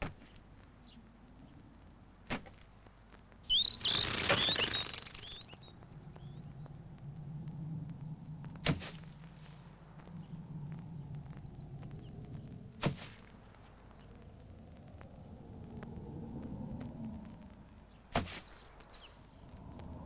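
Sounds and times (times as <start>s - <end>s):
low steady hum: 0.0s - 3.8s, 5.2s - 20.0s
birds chirping and flapping: 3.4s - 20.0s.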